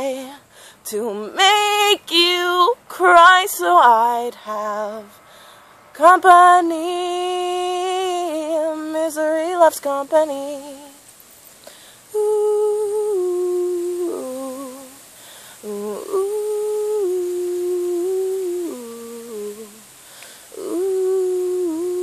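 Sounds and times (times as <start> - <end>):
woman humming: 12.1 - 15.0, 15.6 - 19.9, 20.5 - 22.0.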